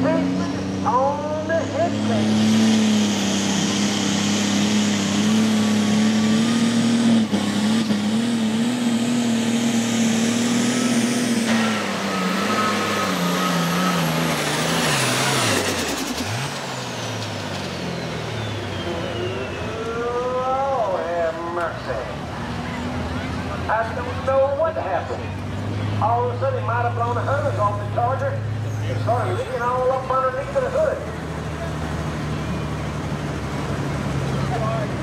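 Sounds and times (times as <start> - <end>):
diesel tractor engine: 0.0 - 35.0.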